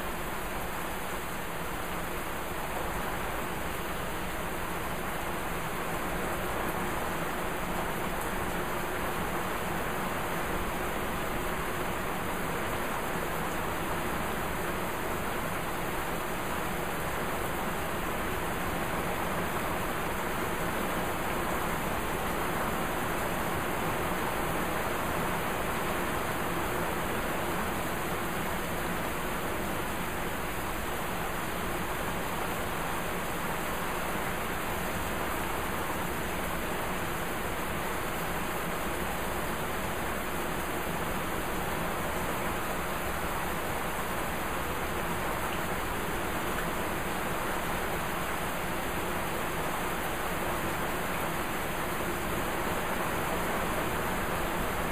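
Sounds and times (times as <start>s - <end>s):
heavy rain falling: 0.0s - 54.9s.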